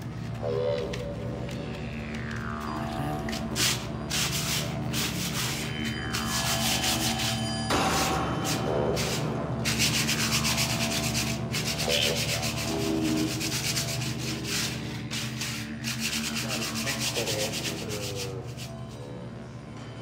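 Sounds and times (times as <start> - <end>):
sandpaper scraping concrete wall: 3.1 - 18.9.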